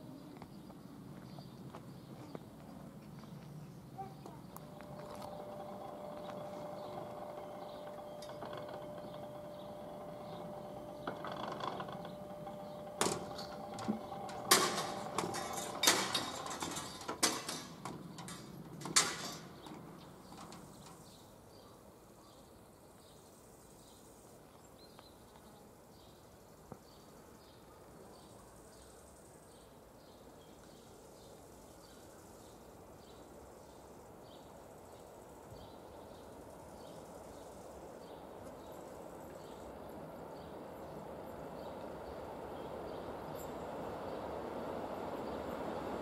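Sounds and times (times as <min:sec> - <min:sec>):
barrier mechanism whine: 0:04.6 - 0:19.6
metallic clanks and rattles: 0:04.7 - 0:21.2.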